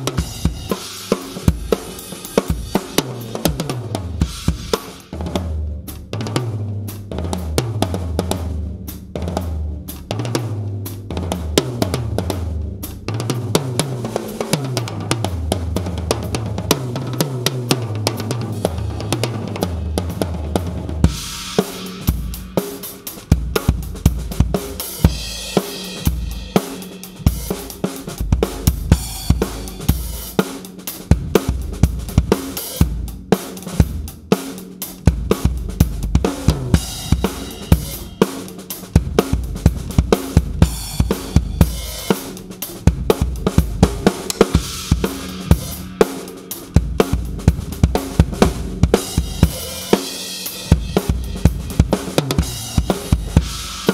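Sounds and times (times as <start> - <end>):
drum kit playing a groove: 0.0 - 53.9.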